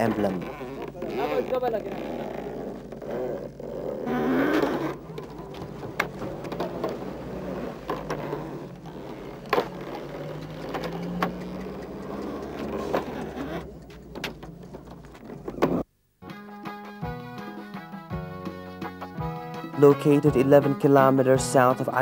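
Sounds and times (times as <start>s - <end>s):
wooden mill grinding: 0.0s - 15.8s.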